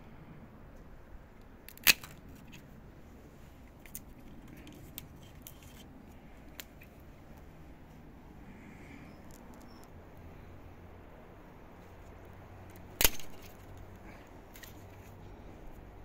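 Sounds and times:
pruning shears snipping: 1.7 - 2.6, 12.7 - 15.2.

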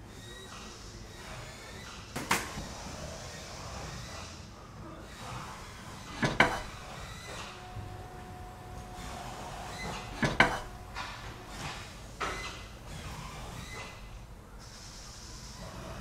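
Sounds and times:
wood-on-wood knocks: 6.2 - 6.7, 10.2 - 10.7.

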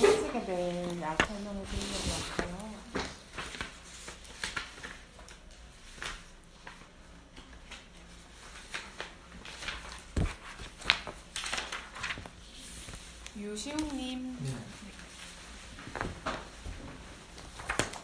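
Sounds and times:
rustling of handled objects: 0.0 - 6.9.

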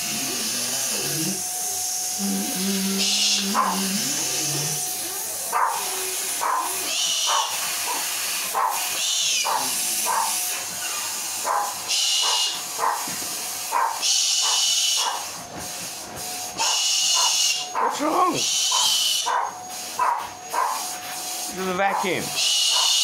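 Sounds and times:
cockatoo hissing: 0.0 - 23.0
vacuum cleaner motor hum: 0.0 - 23.0
cockatoo harsh calls: 5.5 - 13.1, 13.7 - 15.2, 16.6 - 20.8, 21.9 - 23.0.

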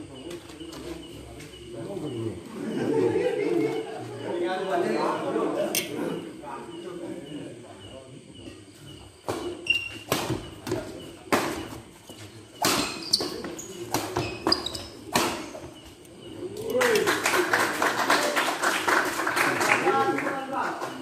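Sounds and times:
racket hitting shuttlecock: 12.6 - 15.7
people clapping: 16.6 - 21.0.

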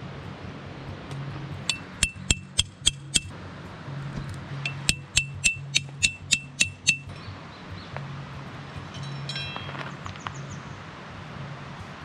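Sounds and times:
hammer striking metal tent peg: 1.7 - 3.3, 4.6 - 7.1.

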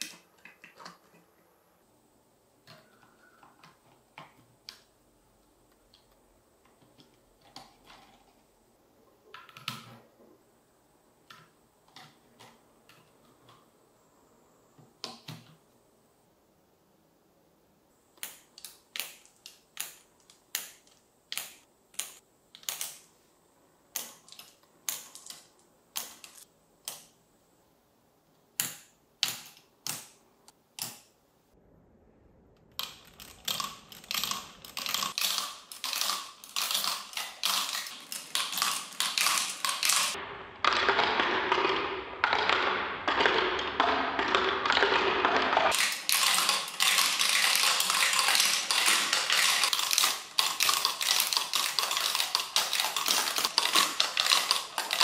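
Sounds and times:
marbles clattering through plastic run: 32.8 - 55.0.

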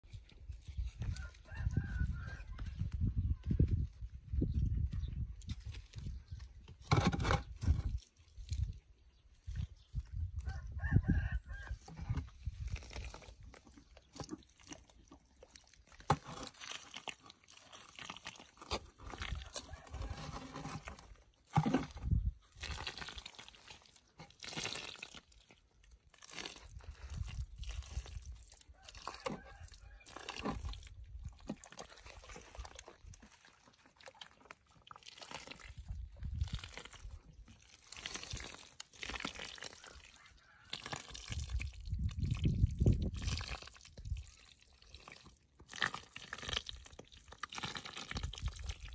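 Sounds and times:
hands scooping wet mud: 0.0 - 48.9.

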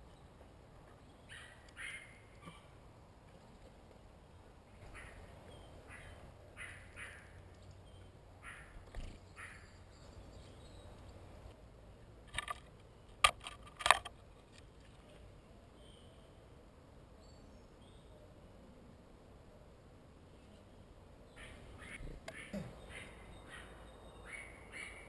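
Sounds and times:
harsh bird calls: 1.0 - 2.7, 4.8 - 11.0, 21.3 - 25.0.

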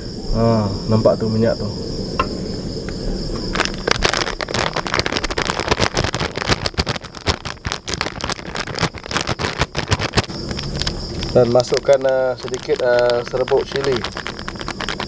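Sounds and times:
crickets chirring: 0.0 - 15.0
plastic sachet crinkling: 3.5 - 15.0.

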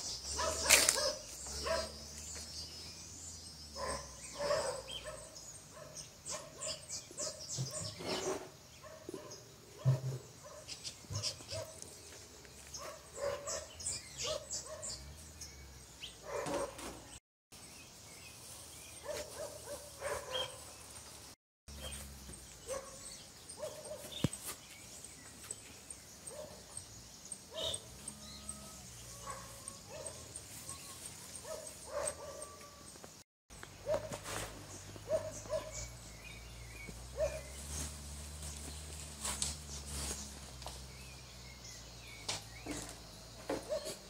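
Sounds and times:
animal barks and chirps: 0.0 - 2.5, 3.7 - 11.9, 12.8 - 15.2, 16.0 - 17.0, 19.0 - 20.7, 21.8 - 24.4, 27.5 - 33.0, 33.8 - 34.2, 34.9 - 36.2, 36.8 - 37.6, 42.6 - 44.0.

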